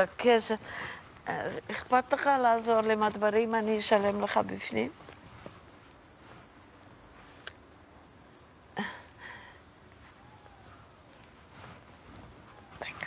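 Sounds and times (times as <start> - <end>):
cricket chirping: 5.0 - 13.0.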